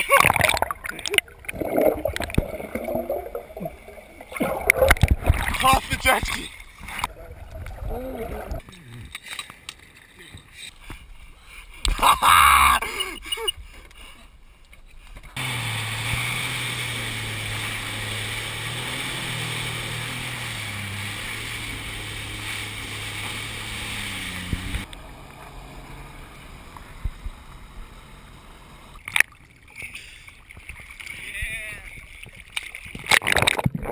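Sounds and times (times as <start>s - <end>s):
rushing water: 0.0s - 8.6s, 15.4s - 28.2s
jet ski engine running: 15.4s - 29.0s.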